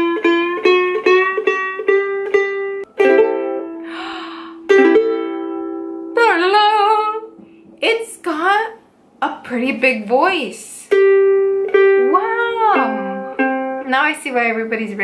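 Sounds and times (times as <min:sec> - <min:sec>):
ukulele string plucked: 0:00.0 - 0:03.9, 0:04.6 - 0:07.4, 0:10.9 - 0:13.9
ukulele chords strummed: 0:00.0 - 0:07.4, 0:10.9 - 0:14.1
woman's voice: 0:06.2 - 0:11.0, 0:12.0 - 0:13.2, 0:13.8 - 0:15.0.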